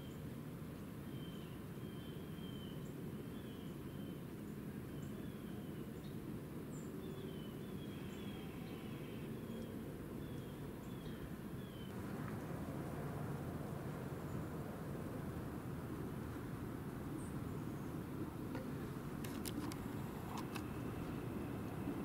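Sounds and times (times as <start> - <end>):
low background rumble: 6.7 - 22.0.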